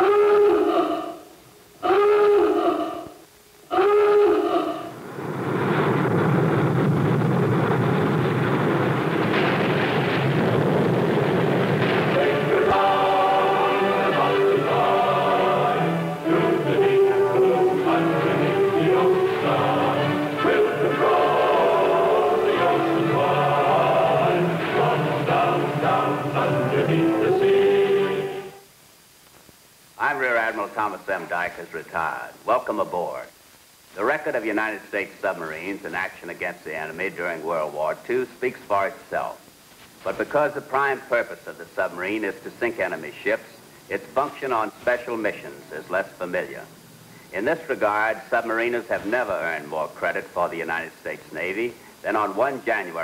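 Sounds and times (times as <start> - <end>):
choir singing held notes: 11.8 - 28.6.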